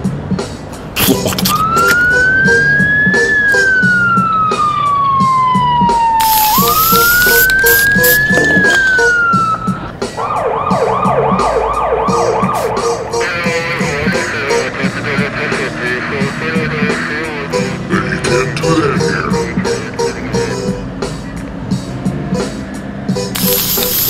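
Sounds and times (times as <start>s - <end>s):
music with steady beat: 0.0s - 17.0s
siren wailing and yelping: 1.5s - 13.6s
short burst of hiss: 6.2s - 8.4s, 23.4s - 24.0s.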